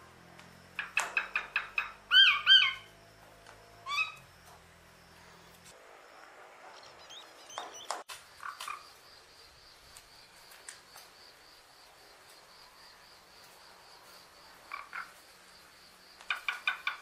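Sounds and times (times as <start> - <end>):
mynah bird soft calls: 3.8 - 4.2
faint high chirping pulse: 6.2 - 8.0.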